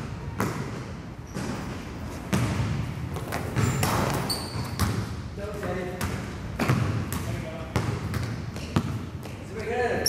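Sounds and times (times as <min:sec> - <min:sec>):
sneaker squeaks: 0:00.3 - 0:05.1, 0:06.1 - 0:09.4
basketball bouncing on wooden floor: 0:02.3 - 0:05.1, 0:06.0 - 0:09.4.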